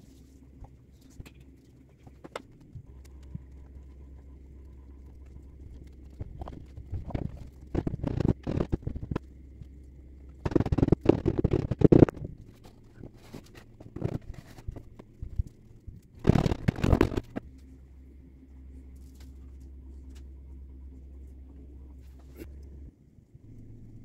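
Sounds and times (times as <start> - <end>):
small knocks: 10.4 - 15.6, 16.2 - 17.5.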